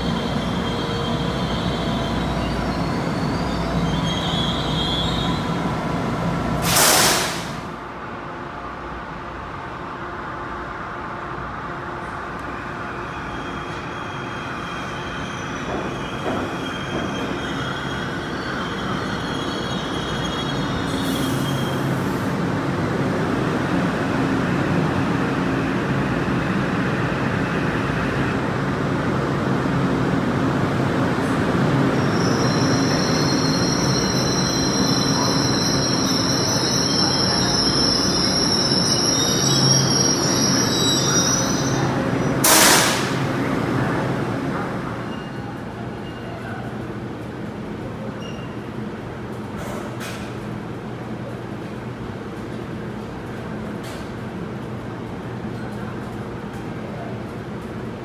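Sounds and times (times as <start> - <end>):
train wheels squealing: 0.0 - 5.6, 12.5 - 22.2, 31.9 - 43.1, 44.9 - 46.7, 48.0 - 48.7
train rumble: 0.0 - 58.0.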